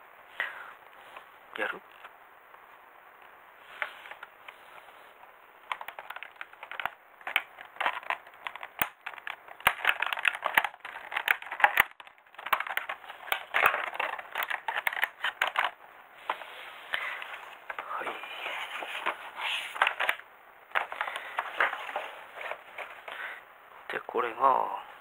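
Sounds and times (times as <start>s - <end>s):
scissors cutting plastic crackling: 5.7s - 15.8s.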